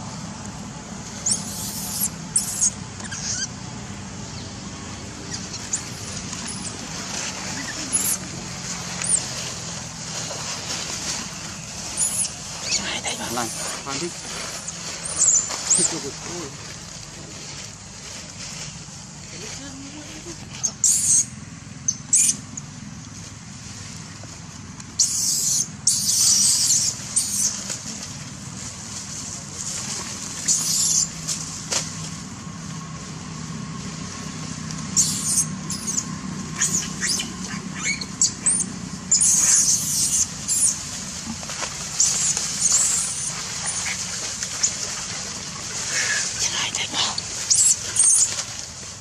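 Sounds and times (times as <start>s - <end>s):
steady low hum: 0.0s - 49.0s
monkey squeaks: 1.2s - 3.5s, 5.3s - 6.8s, 7.5s - 8.2s, 9.0s - 9.3s, 11.9s - 13.7s, 14.6s - 16.0s, 20.6s - 22.6s, 25.0s - 27.6s, 30.4s - 31.1s, 35.0s - 40.8s, 42.0s - 44.0s, 47.4s - 48.4s
rustling and scratching: 5.0s - 20.8s, 22.4s - 49.0s.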